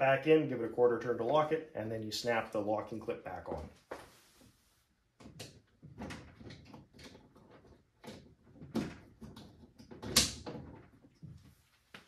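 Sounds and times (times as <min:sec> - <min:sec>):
plastic parts clicking and knocking: 0:05.2 - 0:11.4.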